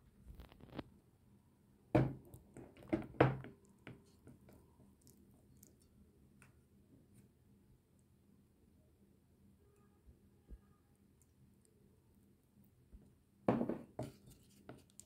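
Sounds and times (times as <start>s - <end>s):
wooden spoon knocking glass bowl: 13.5s - 14.1s.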